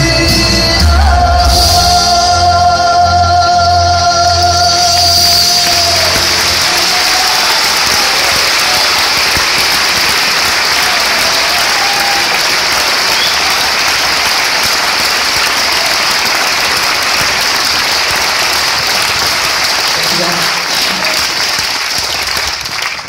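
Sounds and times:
audience applauding: 5.0s - 23.0s.

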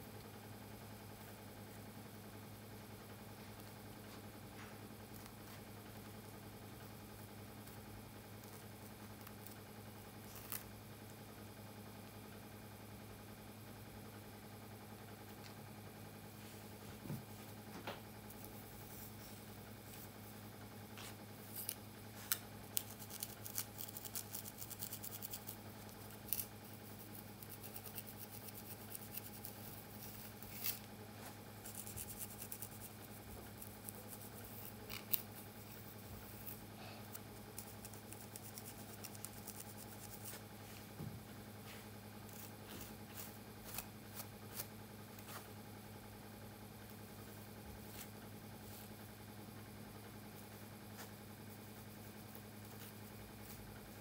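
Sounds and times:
faint steady hum: 0.0s - 54.0s
comb crackling through hair: 8.4s - 10.8s, 20.9s - 40.7s, 42.2s - 45.5s.

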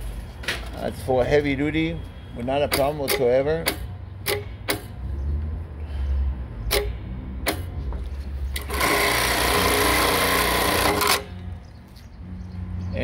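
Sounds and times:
sharp clicks: 2.7s - 5.0s, 6.7s - 7.7s
sewing machine motor hum: 8.6s - 11.3s.

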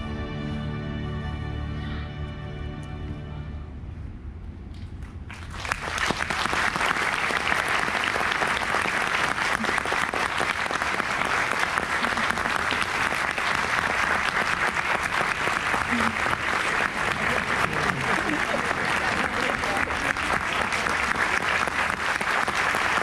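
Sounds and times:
audience applauding: 5.3s - 23.0s.

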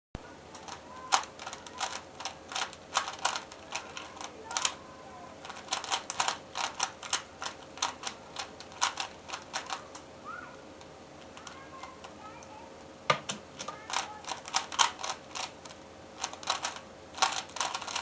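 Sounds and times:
puzzle cube layers clacking: 0.6s - 4.8s, 5.4s - 10.0s, 13.6s - 18.0s.

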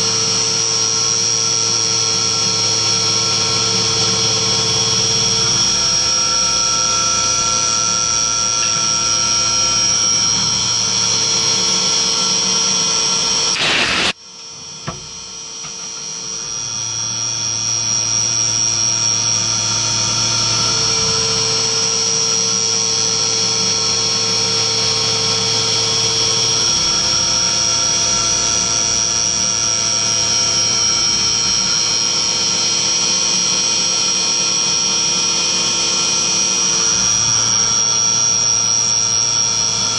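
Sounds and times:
milling machine high-pitched whine: 0.0s - 39.9s
coolant hiss: 13.5s - 14.2s.

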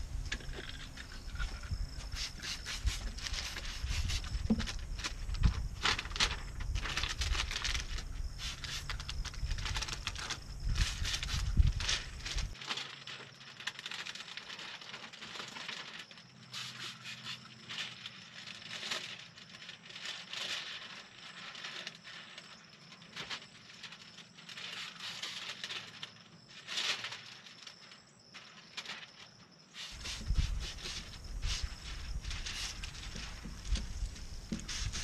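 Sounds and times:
wet film swishing on glass: 29.7s - 35.0s.

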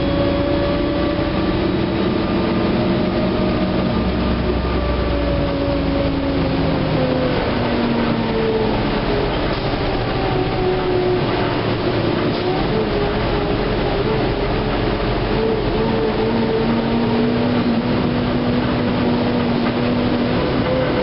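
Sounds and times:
bus engine drone and whine: 0.0s - 21.0s
road noise: 0.0s - 21.0s.

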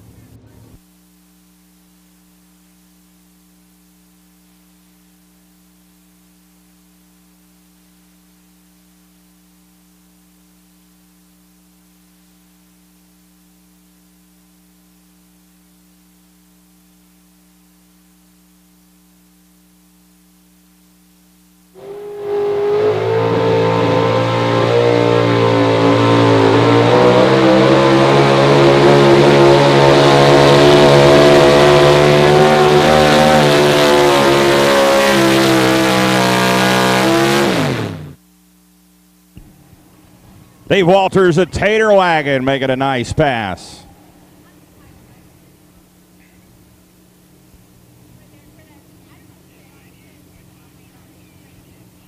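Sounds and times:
faint electrical hum: 0.0s - 21.8s, 38.1s - 52.0s
truck engine revving under load: 21.8s - 38.2s.

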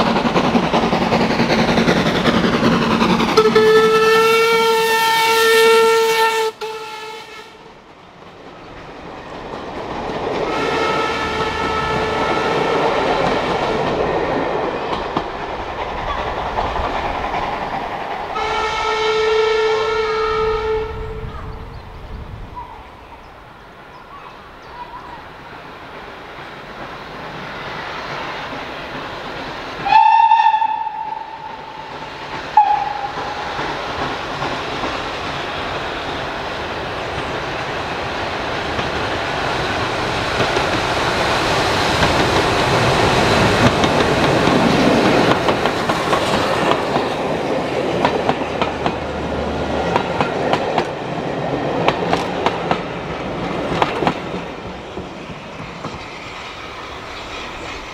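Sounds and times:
wheels clacking over rail joints: 0.0s - 5.8s, 7.7s - 19.1s, 30.8s - 57.9s
train running past: 0.0s - 57.9s
steam locomotive whistle: 3.4s - 7.7s, 10.5s - 13.3s, 18.3s - 21.4s, 29.8s - 33.6s.

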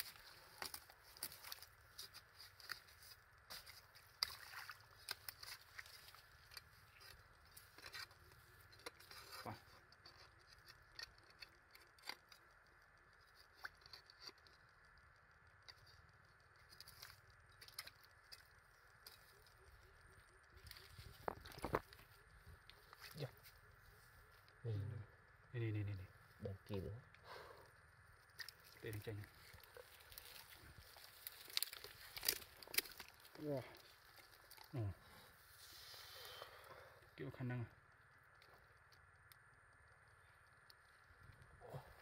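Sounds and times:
stick probing wet mud: 0.0s - 12.4s, 28.2s - 34.8s.

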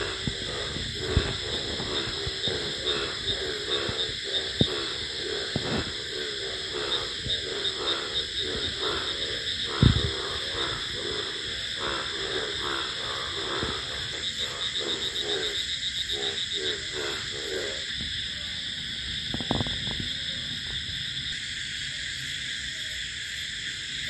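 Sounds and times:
frogs croaking: 0.0s - 24.0s
loud thump: 9.7s - 10.3s.

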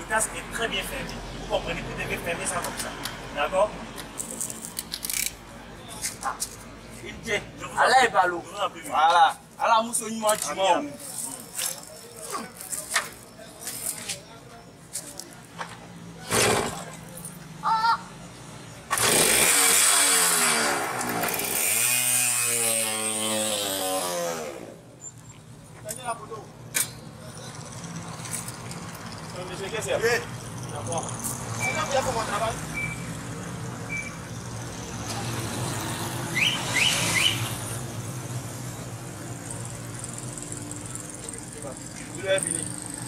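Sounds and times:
moped engine starting and revving: 18.9s - 24.8s
vehicle engine humming: 20.4s - 43.0s
quick rising chirps: 36.3s - 37.6s.

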